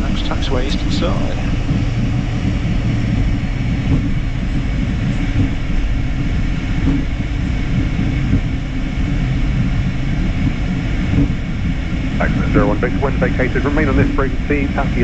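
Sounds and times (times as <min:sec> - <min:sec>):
jet engines low rumble: 0:00.0 - 0:15.0
wheels rolling on taxiway: 0:00.0 - 0:15.0.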